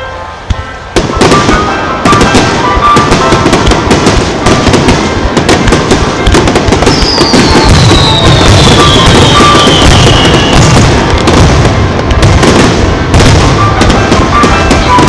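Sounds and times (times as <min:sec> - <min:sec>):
firework shells bursting: 0:00.5 - 0:15.0
high whistle falling in pitch: 0:06.9 - 0:10.7.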